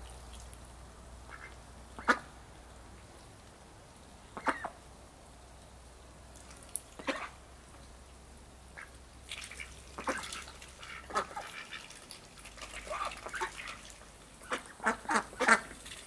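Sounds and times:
ducks quacking: 1.3s - 2.3s, 4.3s - 4.8s, 7.0s - 7.4s, 8.8s - 12.0s, 12.6s - 15.8s.

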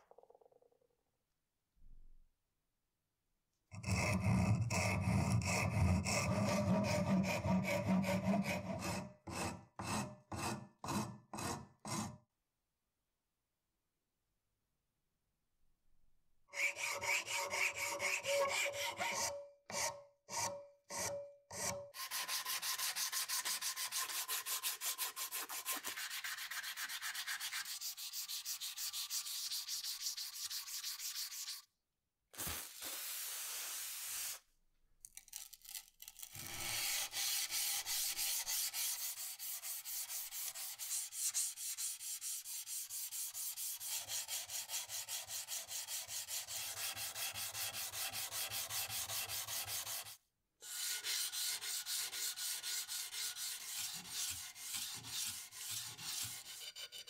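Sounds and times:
sandpaper rubbing on wood: 22.0s - 31.6s, 36.8s - 57.0s.

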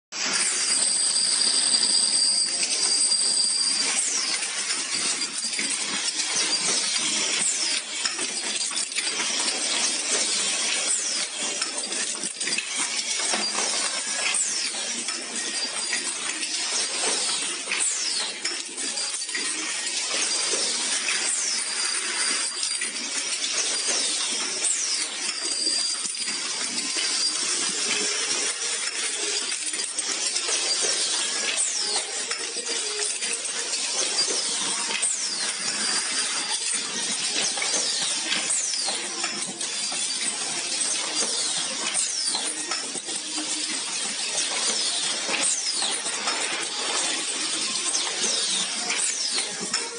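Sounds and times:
steel bearings clattering on metal: 0.2s - 49.9s.

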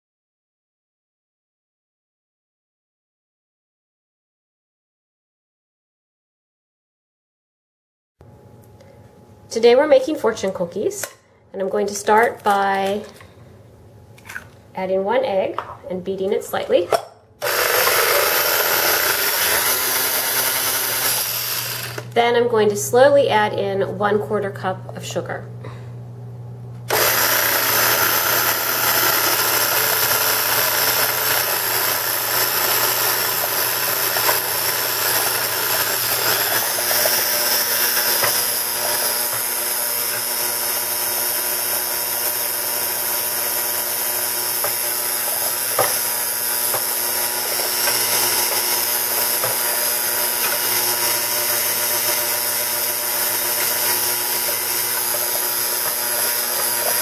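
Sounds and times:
electric mixer whirring: 17.4s - 22.2s, 26.9s - 57.0s.

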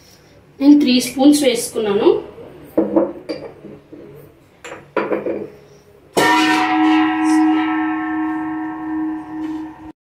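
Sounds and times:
metal object ringing like a bell: 6.2s - 9.9s.

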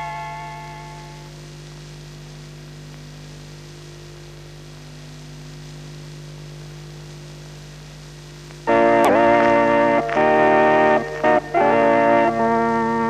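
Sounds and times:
electrical mains hum: 0.0s - 13.0s
loud music: 8.7s - 13.0s.

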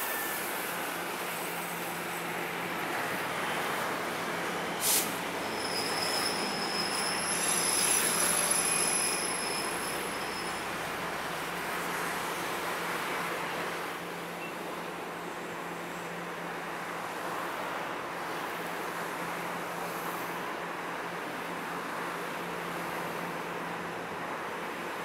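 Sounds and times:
train wheels squealing on rails: 0.0s - 13.7s, 14.3s - 14.8s.

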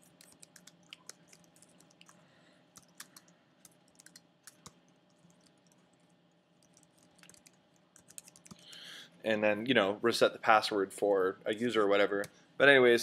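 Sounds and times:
keystrokes on computer keyboard: 0.0s - 2.2s, 2.8s - 6.0s, 6.6s - 8.8s.

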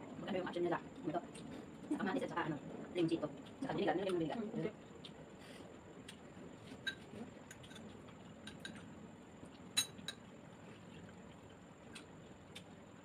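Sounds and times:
cutlery clinking against dishes: 6.8s - 7.9s, 8.5s - 8.8s, 9.7s - 10.2s.

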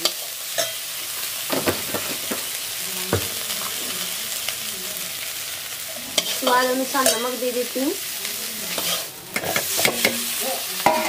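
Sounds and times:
oil sizzling in pan: 0.0s - 11.0s
spatula knocking on pan: 1.5s - 2.5s, 3.1s - 3.4s
metal spatula scraping pan: 6.1s - 7.5s, 8.7s - 11.0s.

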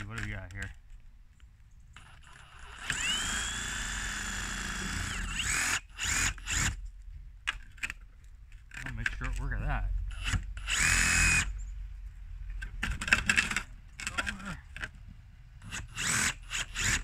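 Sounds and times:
reciprocating saw running: 2.0s - 6.8s, 10.1s - 11.5s, 15.6s - 17.0s.

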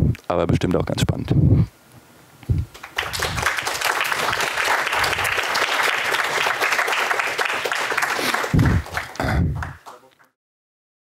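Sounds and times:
audience applauding: 2.7s - 10.3s.

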